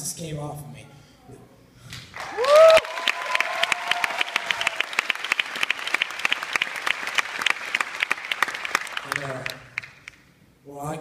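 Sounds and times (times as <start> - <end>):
audience applauding: 1.9 - 10.2
crowd cheering: 2.2 - 9.6.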